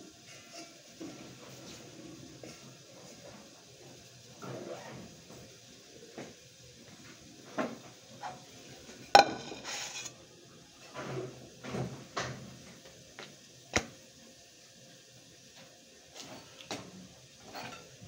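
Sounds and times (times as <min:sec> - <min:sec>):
metal cookware clattering: 0:09.1 - 0:10.1, 0:17.4 - 0:18.0.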